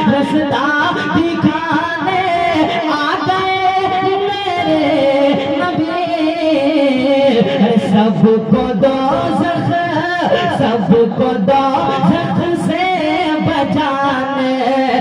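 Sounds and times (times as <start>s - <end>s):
man singing into a microphone: 0.0s - 15.0s.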